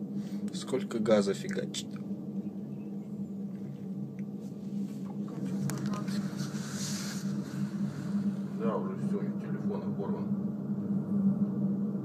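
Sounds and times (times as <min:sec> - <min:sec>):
low hum: 0:00.0 - 0:12.0
faint background voices: 0:05.0 - 0:07.2.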